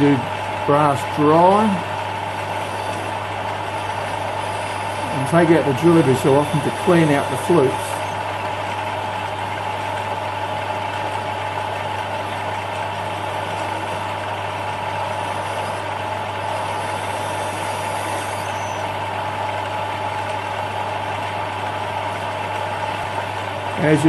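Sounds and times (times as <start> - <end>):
lathe motor whine: 0.0 - 24.0
drill cutting brass: 0.7 - 8.4, 12.1 - 19.2.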